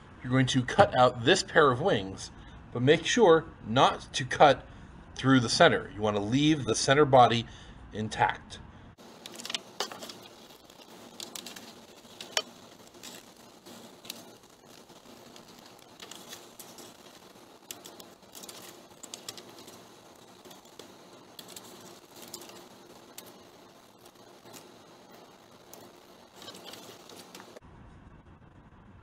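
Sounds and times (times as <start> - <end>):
paper rustling: 9.0 - 27.6.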